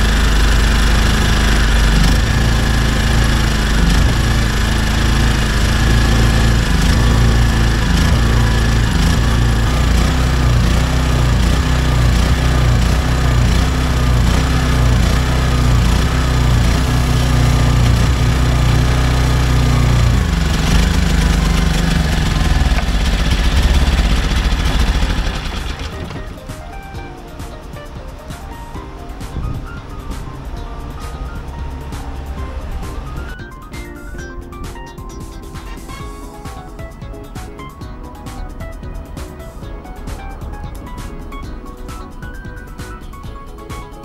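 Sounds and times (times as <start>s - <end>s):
generator engine surging: 0.0s - 44.0s.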